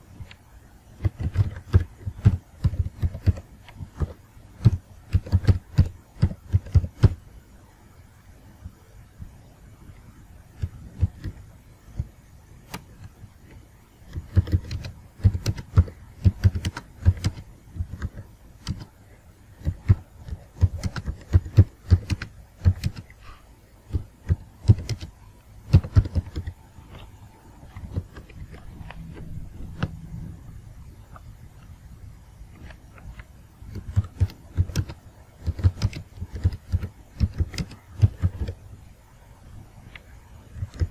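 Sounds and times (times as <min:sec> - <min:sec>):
typing on a keyboard: 0:01.0 - 0:07.2, 0:14.1 - 0:18.9, 0:19.6 - 0:23.1, 0:23.9 - 0:25.1, 0:25.7 - 0:26.6, 0:33.7 - 0:38.6, 0:40.6 - 0:40.9.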